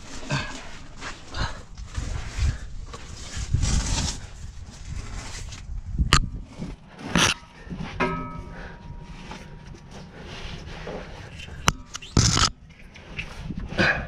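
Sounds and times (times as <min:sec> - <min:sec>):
shuffling and scraping: 0:00.0 - 0:14.0
tire knocking against steel frame: 0:07.4 - 0:09.7.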